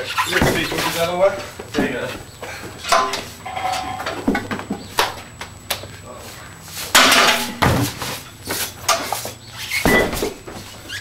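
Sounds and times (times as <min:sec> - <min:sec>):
metal keg clanking: 0:00.2 - 0:02.1, 0:02.8 - 0:04.6, 0:07.0 - 0:07.9.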